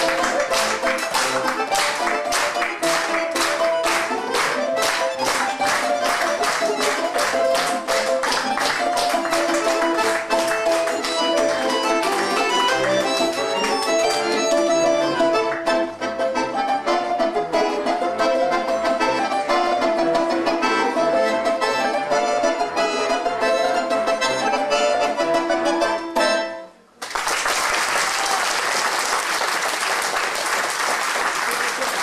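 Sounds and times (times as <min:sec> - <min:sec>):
audience applause: 0:00.0 - 0:14.3, 0:27.0 - 0:32.0
plucked balalaika notes: 0:00.0 - 0:26.9
accordion tones: 0:00.0 - 0:27.0.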